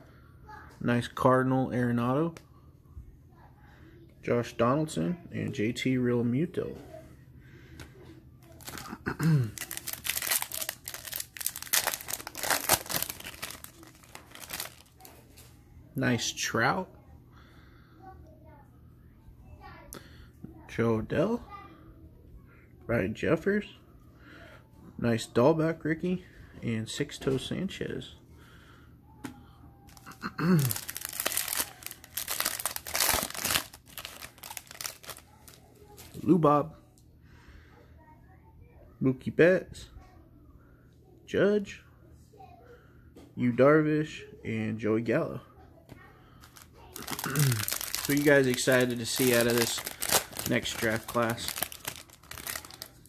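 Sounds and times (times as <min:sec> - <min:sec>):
foil wrapper crinkling and tearing: 0:08.5 - 0:15.2, 0:29.9 - 0:36.2, 0:46.4 - 0:53.0.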